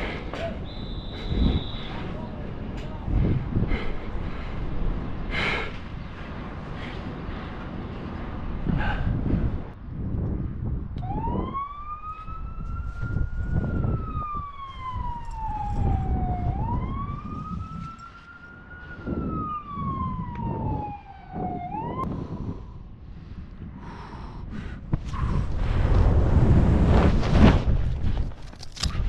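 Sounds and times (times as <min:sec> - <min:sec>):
wind on microphone: 0:00.0 - 0:29.0
emergency siren wailing: 0:11.0 - 0:22.1.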